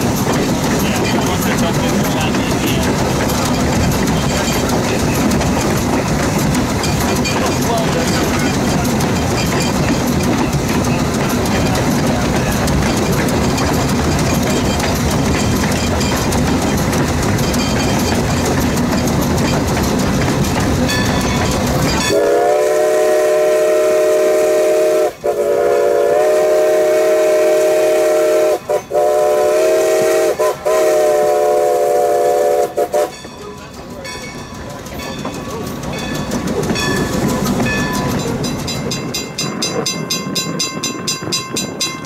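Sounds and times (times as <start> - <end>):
locomotive rumbling: 0.0 - 42.0
steam locomotive whistle: 22.1 - 33.2.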